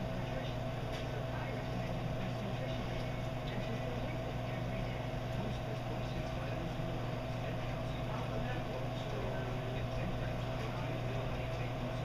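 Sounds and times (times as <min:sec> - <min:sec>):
aquarium pump hum: 0:00.0 - 0:12.0.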